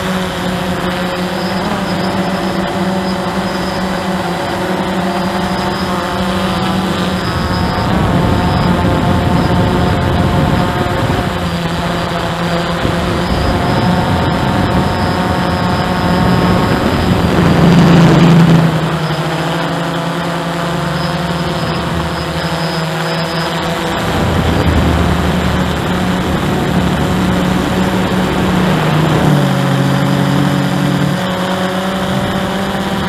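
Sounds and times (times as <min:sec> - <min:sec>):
drone propellers humming: 0:00.0 - 0:33.0.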